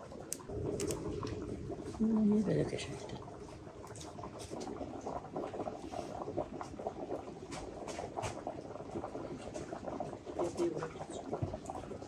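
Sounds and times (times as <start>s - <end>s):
liquid boiling and bubbling: 0.0s - 12.0s.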